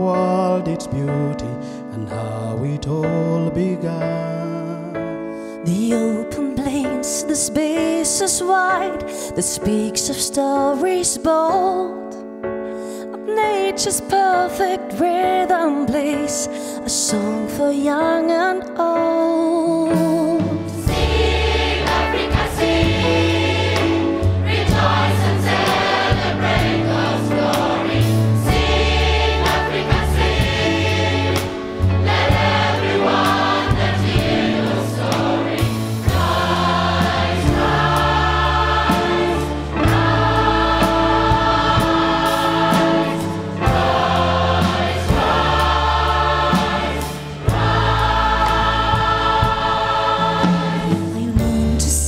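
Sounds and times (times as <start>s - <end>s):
symphony orchestra: 19.5s - 52.0s
choir singing in harmony: 20.4s - 52.0s.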